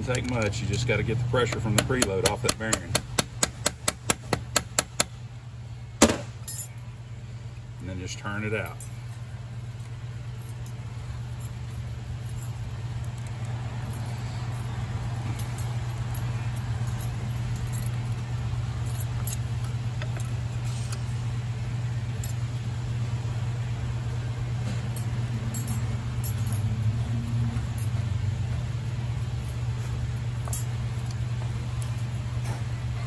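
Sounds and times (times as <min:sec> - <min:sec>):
steady low hum: 0:00.0 - 0:33.0
light metal clinks: 0:06.4 - 0:06.9, 0:08.1 - 0:21.3, 0:24.5 - 0:33.0.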